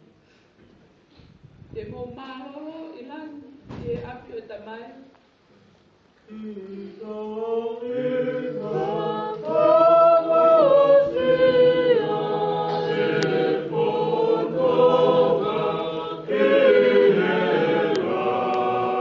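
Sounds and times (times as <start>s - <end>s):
group singing a hymn unaccompanied: 6.3s - 19.0s.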